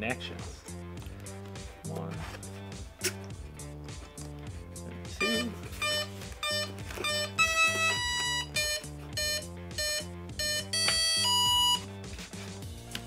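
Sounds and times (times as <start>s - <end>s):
speed controller beeps: 5.2s - 11.8s
longer held electronic tones: 5.2s - 11.9s.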